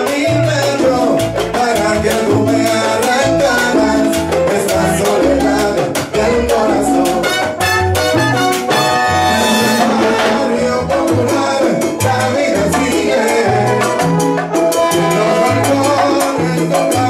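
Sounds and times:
salsa band playing: 0.0s - 17.0s
held horn chord: 7.2s - 10.4s.

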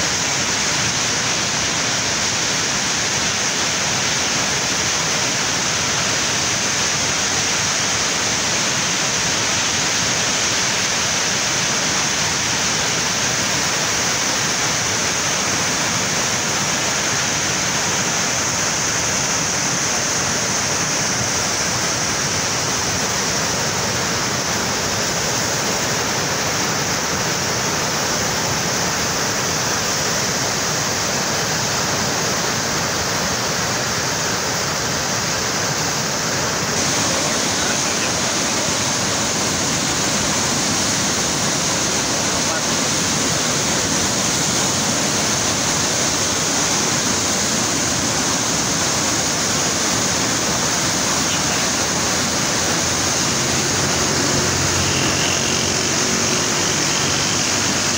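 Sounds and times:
river water rushing: 0.0s - 57.9s.

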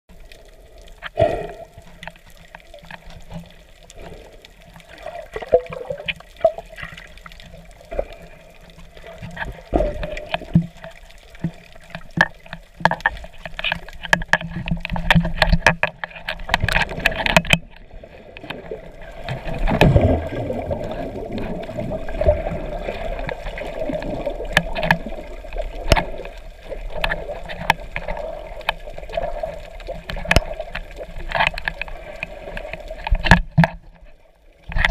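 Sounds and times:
underwater rushing and bubbling: 0.1s - 34.9s
clicks and knocks: 9.2s - 17.8s.

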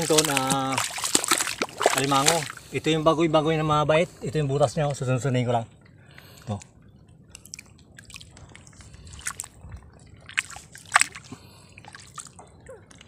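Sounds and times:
wet smacks of water and mud: 0.0s - 2.6s, 7.3s - 9.6s, 10.2s - 13.0s
mud sloshing and squelching: 0.0s - 3.0s, 7.3s - 13.0s.

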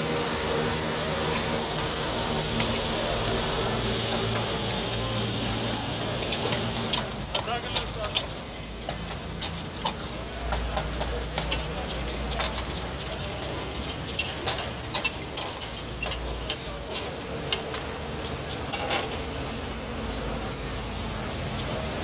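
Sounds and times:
metal utensils scraping a pan: 13.8s - 17.1s.

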